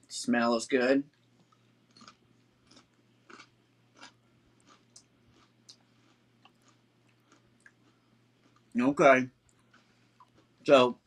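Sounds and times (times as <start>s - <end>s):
man chewing potato chip: 1.9s - 8.8s, 9.5s - 10.7s.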